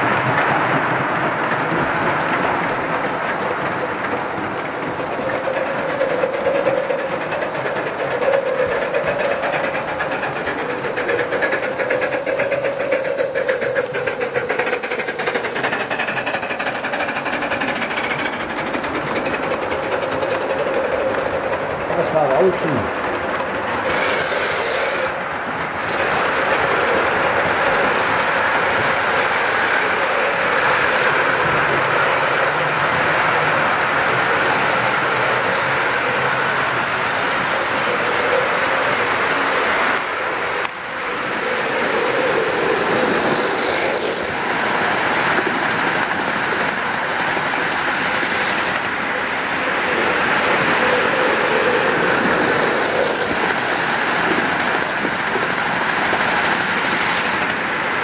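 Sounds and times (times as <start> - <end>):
model train running on track: 0.0 - 58.0.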